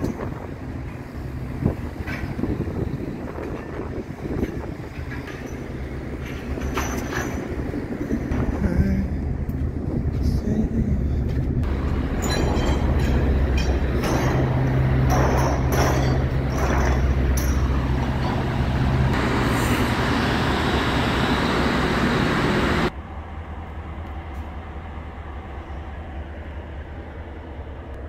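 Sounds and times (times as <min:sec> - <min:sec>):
footsteps on steel deck: 0:00.0 - 0:19.2
low machinery hum: 0:00.0 - 0:28.0.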